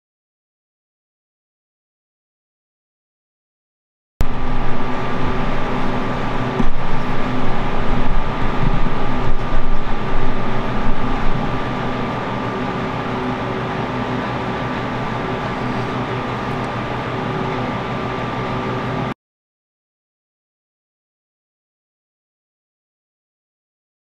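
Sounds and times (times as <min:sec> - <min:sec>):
loud machine drone: 0:04.2 - 0:19.2.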